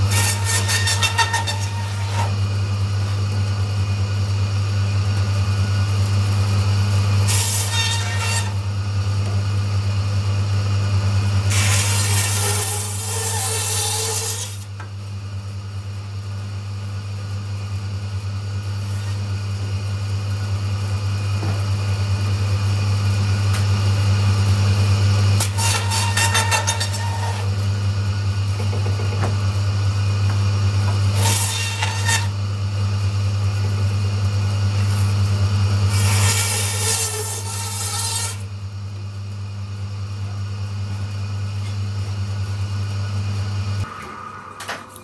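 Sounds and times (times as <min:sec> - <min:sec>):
saw blade cutting bone: 0:00.0 - 0:02.4, 0:25.4 - 0:27.5, 0:31.1 - 0:32.4
bandsaw motor humming: 0:00.0 - 0:15.4, 0:17.6 - 0:44.0.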